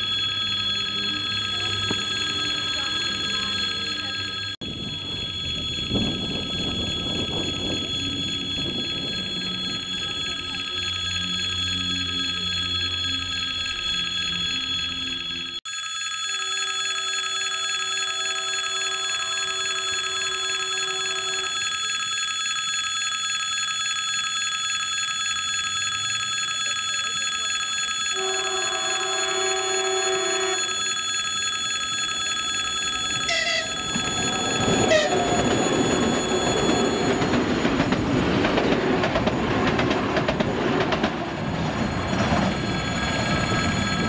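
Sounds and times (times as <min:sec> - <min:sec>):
railway crossing bell ringing: 0:00.0 - 0:44.0.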